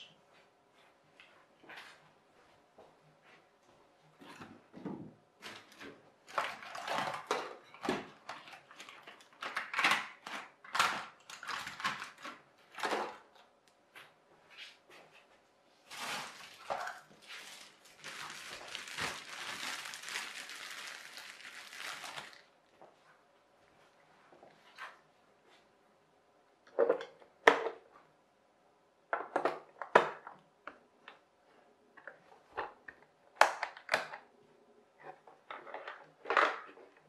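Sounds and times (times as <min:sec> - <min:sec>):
plastic bag of batteries crinkling: 0:08.4 - 0:12.4, 0:15.9 - 0:22.5.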